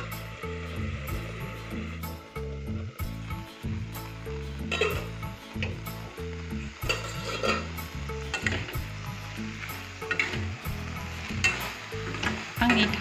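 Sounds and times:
food sizzling: 0.0s - 13.0s
metal spoon scraping a wok: 4.6s - 5.2s, 6.8s - 8.9s, 9.6s - 13.0s.

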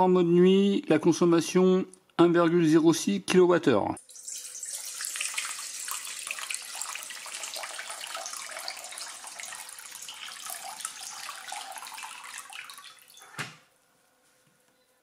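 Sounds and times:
water pouring into metal bowl: 4.0s - 13.3s.

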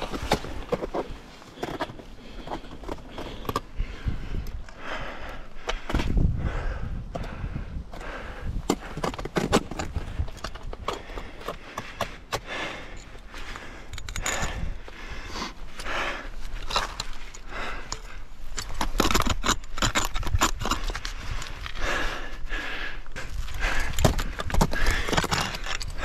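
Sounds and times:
climbing gear clinking: 8.7s - 21.8s, 23.1s - 26.0s
ice tools scraping on rock: 18.6s - 21.8s.

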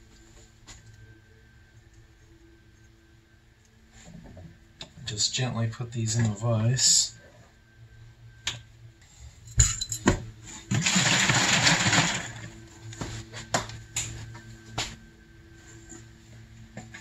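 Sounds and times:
metal knocks and clinks: 9.5s - 10.2s.

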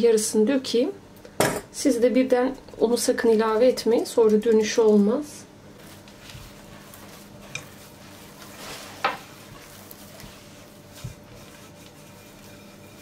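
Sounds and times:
dough squishing and rubbing: 5.6s - 13.0s.

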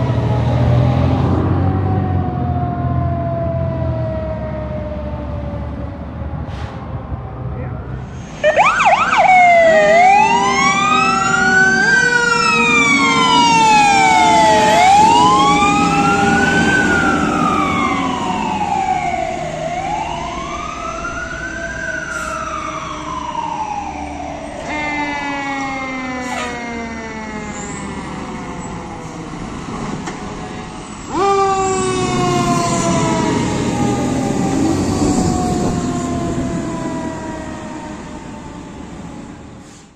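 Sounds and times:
siren yelp: 0.0s - 5.8s, 8.4s - 29.1s, 31.0s - 39.5s
siren wailing: 0.0s - 6.2s, 8.0s - 29.4s, 30.7s - 39.5s.

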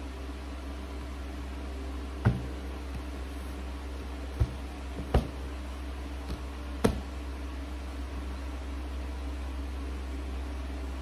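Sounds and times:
low background hum: 0.0s - 11.0s
cardboard box knocks and taps: 2.2s - 3.1s, 4.4s - 5.4s, 6.3s - 7.1s.

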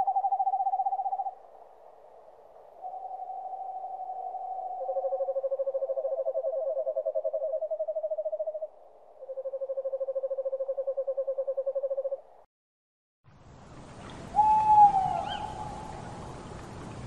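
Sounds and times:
owls trilling: 14.4s - 15.9s.

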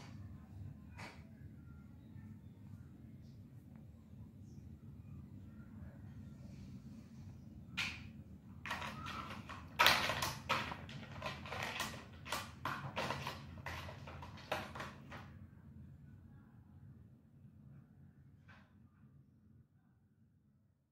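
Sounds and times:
plastic toy truck clattering on tiles: 8.6s - 15.3s.

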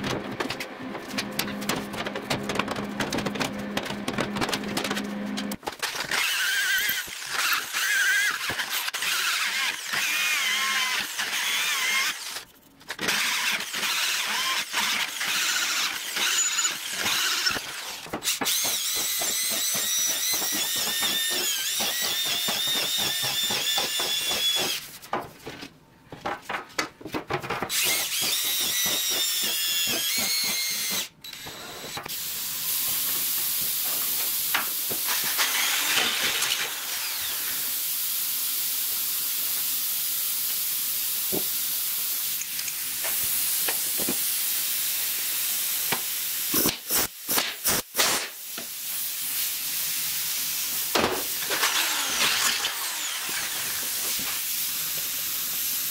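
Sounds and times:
drill bit squealing through metal: 13.2s - 17.8s.

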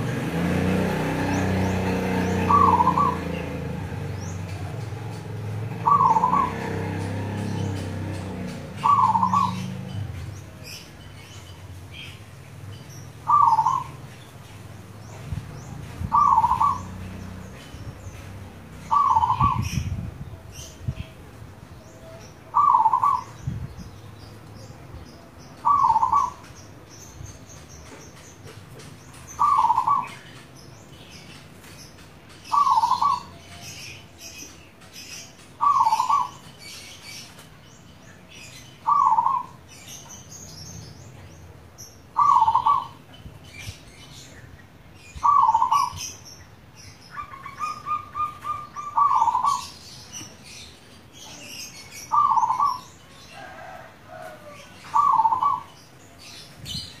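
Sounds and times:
dove cooing: 1.5s - 6.8s, 8.5s - 9.8s, 13.2s - 14.0s, 16.0s - 17.0s, 18.9s - 19.9s, 22.1s - 23.3s, 25.6s - 26.4s, 29.4s - 30.2s, 32.5s - 33.6s, 35.6s - 36.4s, 38.8s - 39.6s, 42.2s - 43.0s, 45.2s - 46.1s, 47.1s - 49.8s, 52.1s - 52.8s, 53.4s - 55.7s.

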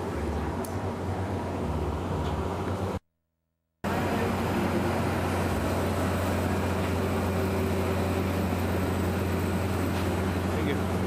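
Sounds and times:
machinery droning: 3.9s - 11.0s.

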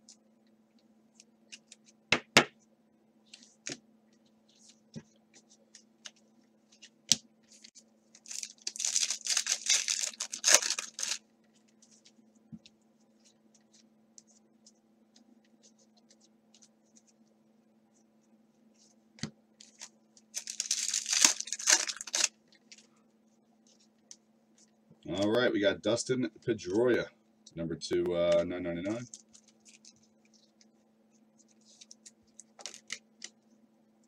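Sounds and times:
plastic packaging crinkling and tearing: 8.2s - 11.2s, 19.6s - 22.9s, 29.0s - 30.0s, 31.8s - 33.0s.

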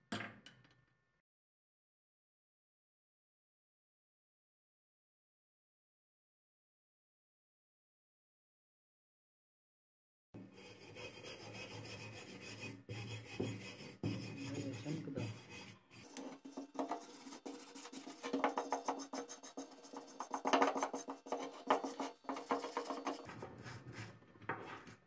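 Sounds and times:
wire brush scrubbing metal: 10.9s - 24.0s.

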